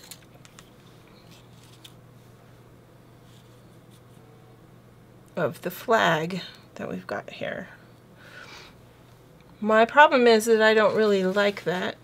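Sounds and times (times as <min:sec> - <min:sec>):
paper rustling: 0:00.4 - 0:02.0.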